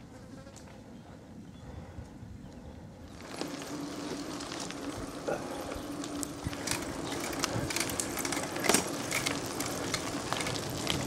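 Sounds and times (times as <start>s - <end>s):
bike tyres on gravel: 2.6s - 11.0s
bike clicks and rattles: 3.1s - 11.0s.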